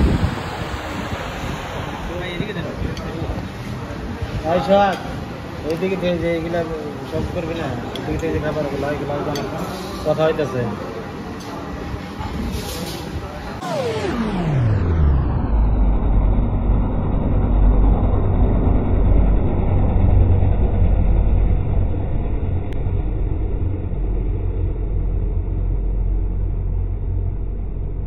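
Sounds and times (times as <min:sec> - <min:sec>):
truck passing: 0:00.0 - 0:04.4
highway traffic rumble: 0:00.0 - 0:13.9.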